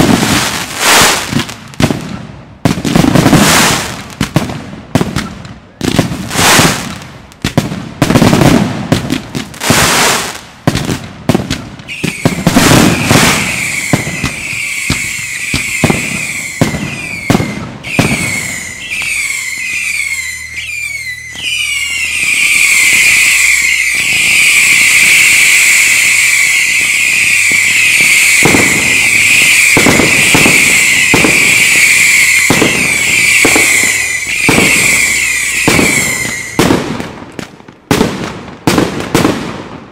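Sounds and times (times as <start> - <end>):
firework bangs: 0.0 - 39.9
shrill firework whistles: 0.4 - 1.3, 11.9 - 36.8.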